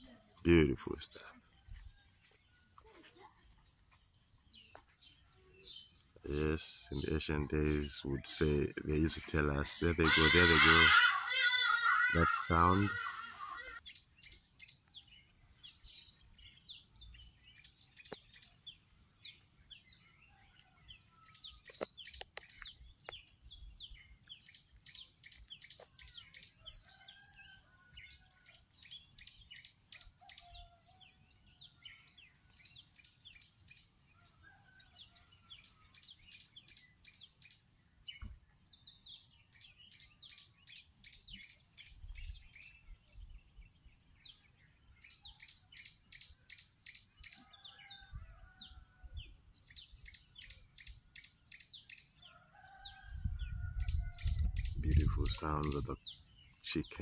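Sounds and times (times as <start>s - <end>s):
small birds chirping: 0.0s - 57.0s
warbling bird calls: 5.2s - 14.4s.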